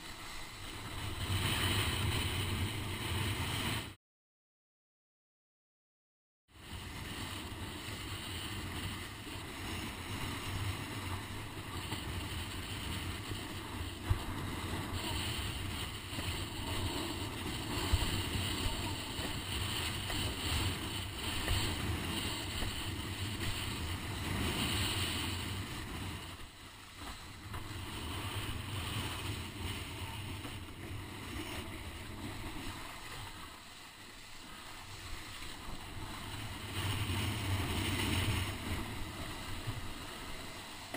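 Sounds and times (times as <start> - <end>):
wind buffeting microphone: 6.6 - 32.8
water rushing under board: 6.7 - 40.9.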